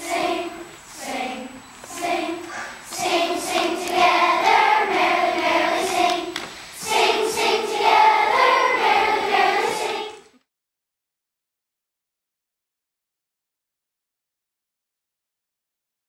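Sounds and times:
children singing in a choir: 0.0s - 10.4s.

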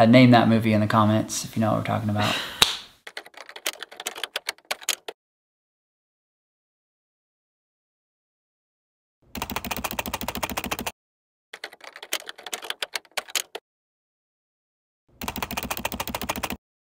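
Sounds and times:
rapid clicking bursts: 3.1s - 5.2s, 9.4s - 10.9s, 11.6s - 13.6s, 15.2s - 16.6s.

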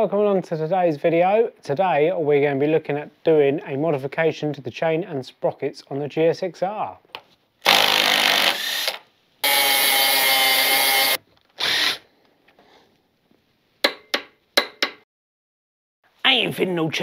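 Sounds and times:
cordless power tool running: 7.7s - 12.0s.

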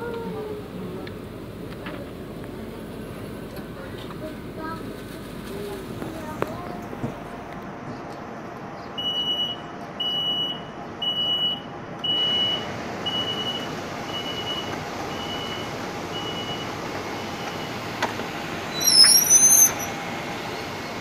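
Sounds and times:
train humming: 15.7s - 21.0s.

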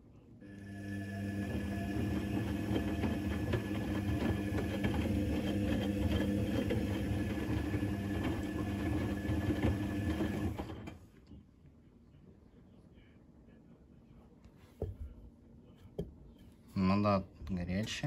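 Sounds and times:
washing machine motor humming: 0.4s - 11.0s.

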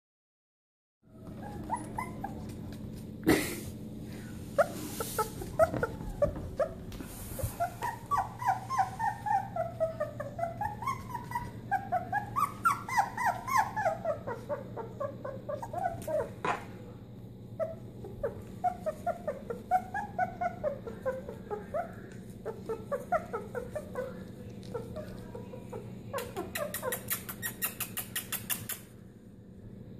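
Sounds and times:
puppy whining: 1.1s - 3.5s, 4.4s - 16.7s, 17.5s - 28.9s.

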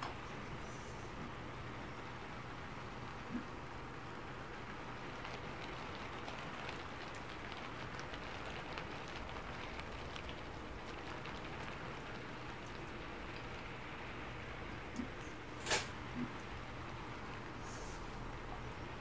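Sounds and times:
heavy rain: 4.4s - 14.8s
raindrop ticks: 4.8s - 15.4s.

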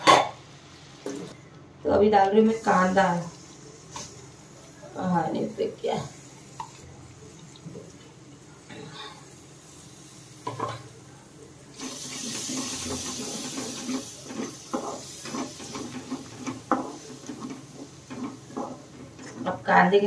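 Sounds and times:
onions sizzling in hot oil: 0.0s - 1.4s, 2.4s - 20.0s
stirring against pan: 11.8s - 20.0s.

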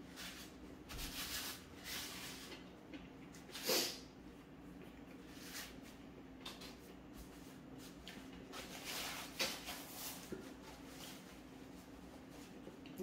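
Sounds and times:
paper napkin rustling: 7.2s - 12.6s.

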